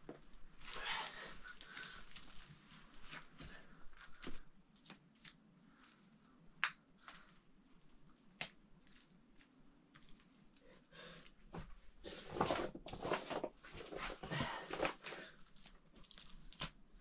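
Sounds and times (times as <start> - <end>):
soft wet pats of mud: 0.1 - 11.4.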